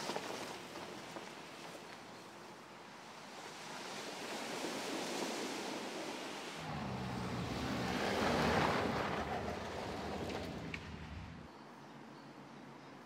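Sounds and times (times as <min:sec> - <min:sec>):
low engine hum: 0:06.6 - 0:11.5.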